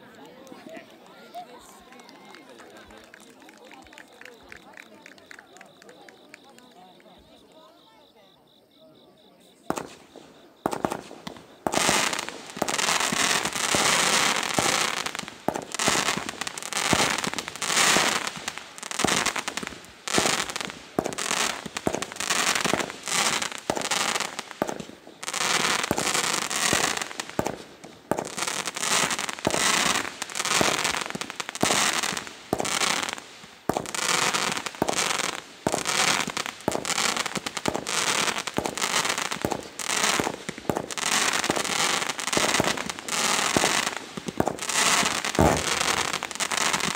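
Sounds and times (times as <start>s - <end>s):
fireworks popping and bursting: 9.7s - 46.9s.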